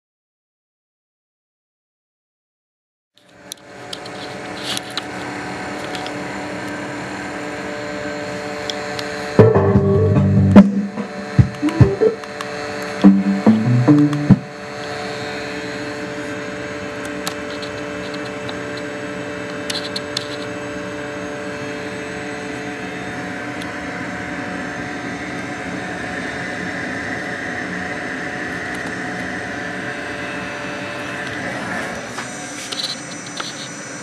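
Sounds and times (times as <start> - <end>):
whirring hum with hiss: 3.2 - 34.0
heavy bass notes: 9.4 - 12.2, 13.0 - 14.5.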